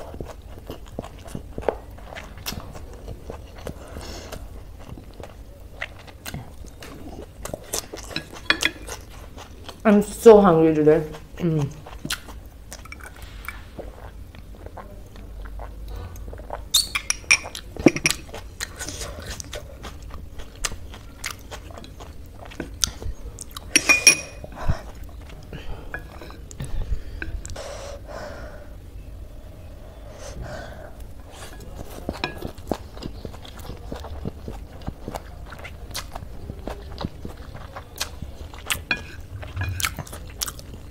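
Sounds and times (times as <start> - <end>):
wet chewing and slurping: 0.0 - 9.8, 31.0 - 40.9.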